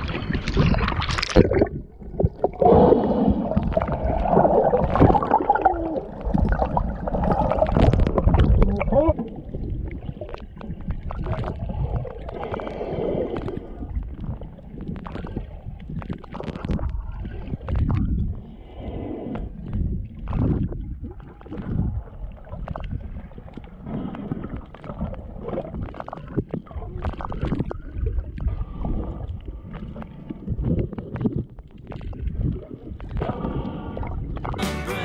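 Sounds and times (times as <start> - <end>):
bubbles: 0.0 - 34.6
muffled underwater surging: 0.0 - 35.0.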